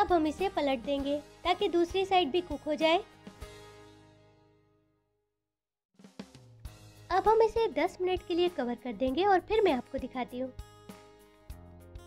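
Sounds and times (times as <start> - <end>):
background music: 0.0 - 4.9, 6.1 - 12.0.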